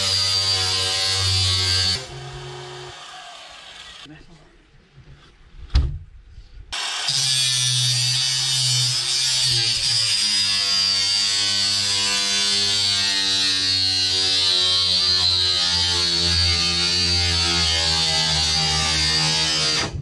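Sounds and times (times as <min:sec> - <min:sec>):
power tool high whine: 0:00.0 - 0:04.1, 0:06.8 - 0:08.6.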